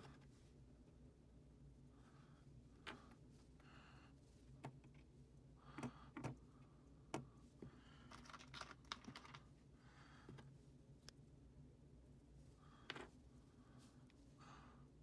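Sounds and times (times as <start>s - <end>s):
small metal parts clicking on wood: 8.1s - 9.4s.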